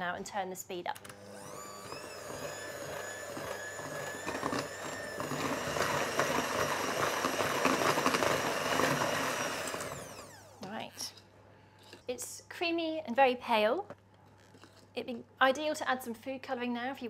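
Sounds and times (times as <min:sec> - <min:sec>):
electric hand mixer whining: 0:01.0 - 0:11.0.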